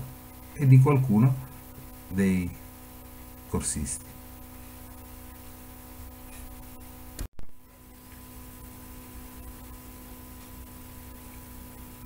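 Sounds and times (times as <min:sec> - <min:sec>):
electrical hum and hiss: 0:00.0 - 0:12.0
person speaking: 0:00.6 - 0:02.6, 0:03.5 - 0:04.1.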